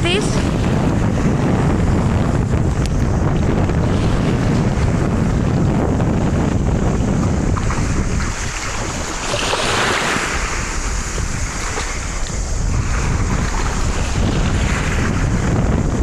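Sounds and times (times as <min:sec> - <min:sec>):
wind buffeting microphone: 0:00.0 - 0:16.0
waves washing on pebble shore: 0:07.4 - 0:15.4.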